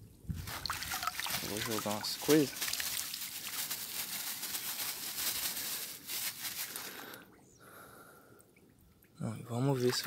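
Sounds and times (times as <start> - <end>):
water pouring and splashing: 0.3 - 6.9, 9.6 - 10.0.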